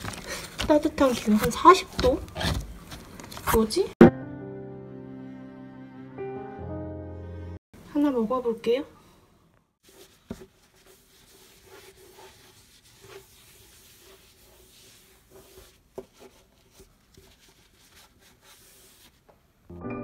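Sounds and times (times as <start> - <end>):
rubbing and scraping on hard surface: 9.8 - 19.4.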